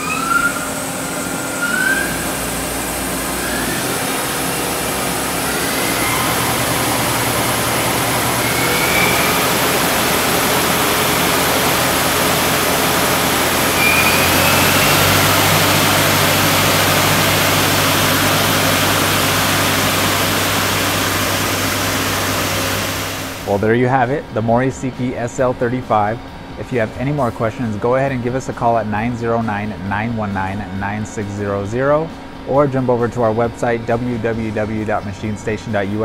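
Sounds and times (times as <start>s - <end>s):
lathe spindle whirring: 0.0s - 23.6s
low motor hum: 0.0s - 36.0s.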